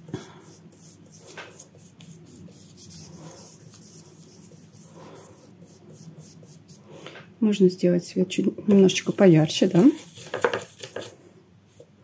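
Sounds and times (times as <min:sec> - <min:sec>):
brush stroking paper: 0:00.4 - 0:06.8, 0:08.9 - 0:11.1.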